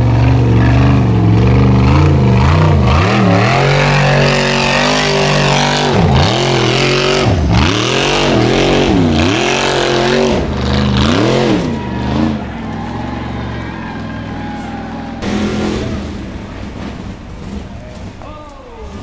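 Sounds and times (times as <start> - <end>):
buggy engine revving: 0.0 - 19.0
tyres spinning in sand: 1.9 - 19.0.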